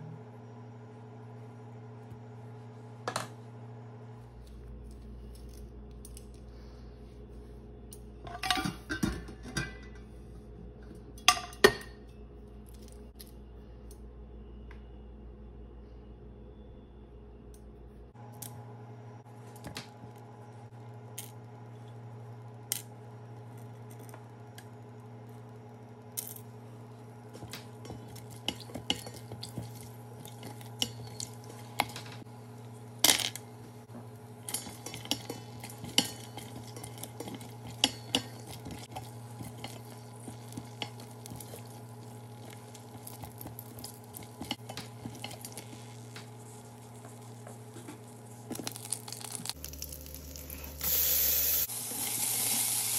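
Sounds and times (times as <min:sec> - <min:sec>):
steady low hum: 0:00.0 - 0:52.0
spatula stirring and tapping pot: 0:34.5 - 0:46.4
faint oil sizzling: 0:34.6 - 0:52.9
spices dropped into pot: 0:48.0 - 0:51.0.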